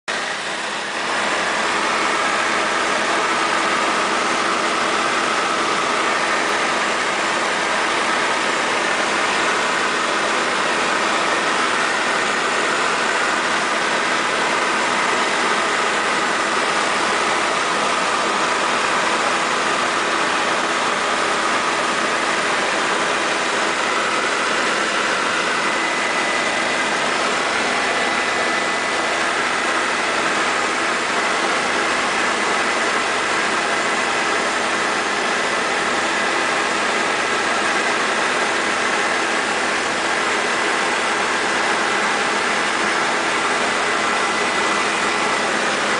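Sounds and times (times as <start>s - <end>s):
helicopter engine and rotor drone: 0.1s - 45.9s.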